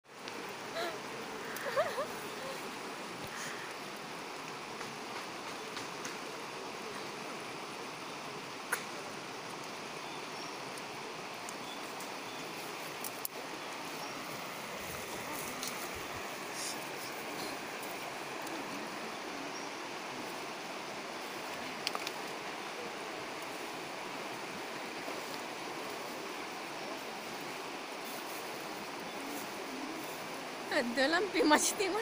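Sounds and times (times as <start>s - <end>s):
river water rushing over riffles: 0.1s - 32.0s.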